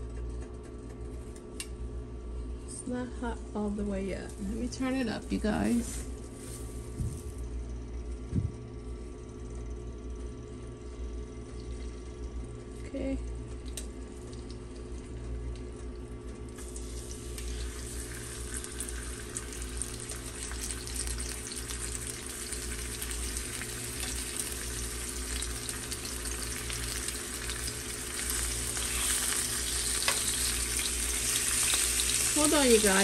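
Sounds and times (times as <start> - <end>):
steady low hum: 0.0 - 33.0
chicken sizzling in a pan: 16.6 - 33.0.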